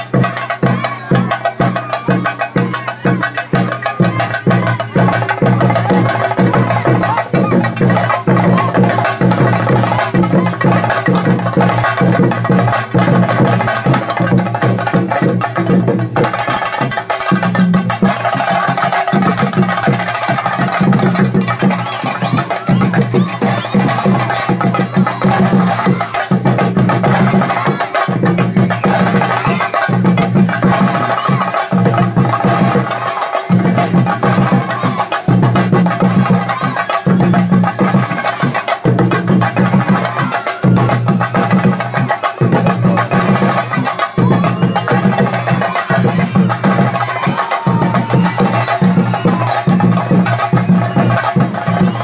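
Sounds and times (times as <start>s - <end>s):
drums beaten with sticks: 0.0s - 52.0s.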